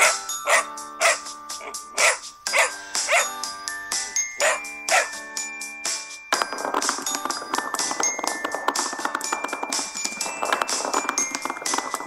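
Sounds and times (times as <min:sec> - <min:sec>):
puppy yapping: 0:00.0 - 0:03.3, 0:04.4 - 0:05.1
light background music: 0:00.0 - 0:12.0.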